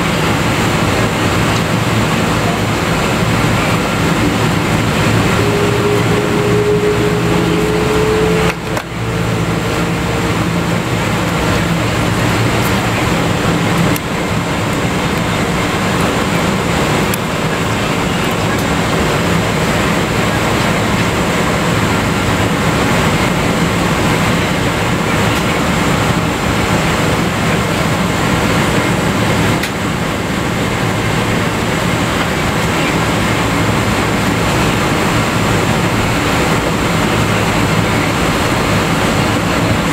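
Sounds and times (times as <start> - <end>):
low engine hum: 0.0 - 39.9
faint tone: 3.6 - 11.2.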